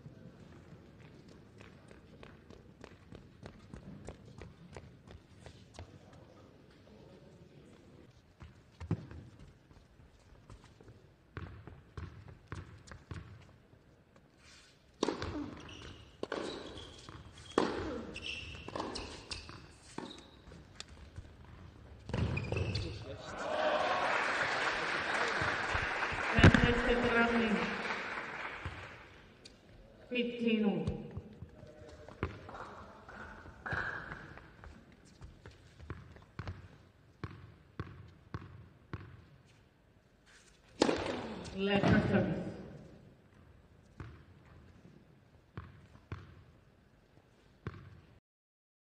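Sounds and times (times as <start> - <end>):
shoe squeaks: 14.4 - 20.7, 22.1 - 23.1
racket striking tennis ball: 15.0 - 15.6, 17.5 - 20.2, 40.8 - 42.1
ball bouncing: 16.2 - 20.2, 20.8 - 22.8, 25.7 - 27.4, 33.6 - 34.8, 40.8 - 42.2
crowd noise: 23.2 - 29.2.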